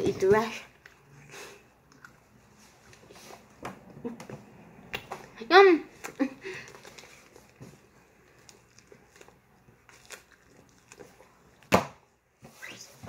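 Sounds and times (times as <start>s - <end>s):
gum pack crinkling in hands: 8.2s - 11.6s.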